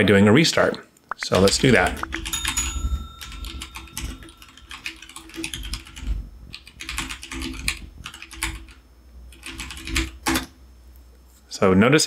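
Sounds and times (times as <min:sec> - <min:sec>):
computer keyboard typing: 0:01.1 - 0:10.5.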